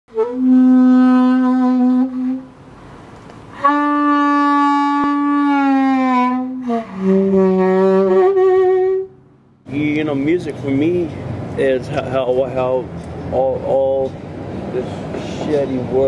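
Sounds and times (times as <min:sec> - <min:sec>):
saxophone playing long notes: 0:00.1 - 0:02.6, 0:03.5 - 0:09.2.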